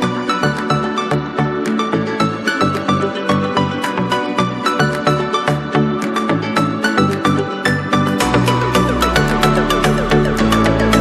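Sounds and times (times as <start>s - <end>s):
electronic music with steady beat: 0.0s - 11.0s.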